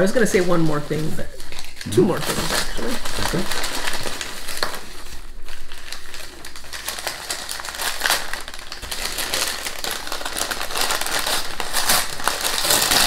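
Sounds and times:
packing paper crinkling: 0:00.0 - 0:13.0.

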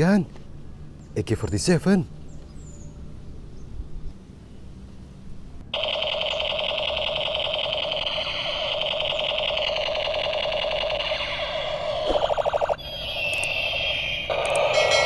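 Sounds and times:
toy gun electronic machine-gun sound: 0:05.7 - 0:15.0.

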